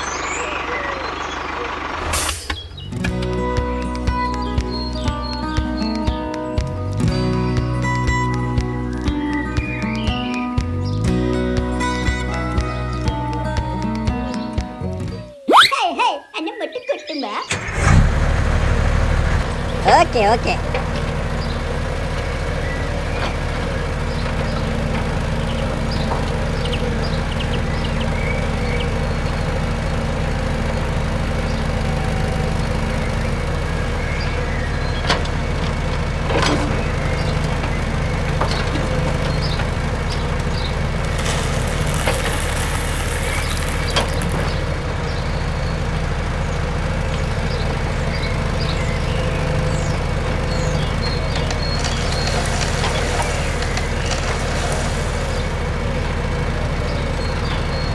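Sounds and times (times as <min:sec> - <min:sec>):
gravel clicking and clattering: 0:17.8 - 0:57.9
gravel pouring rattle: 0:36.8 - 0:45.0, 0:49.6 - 0:57.9.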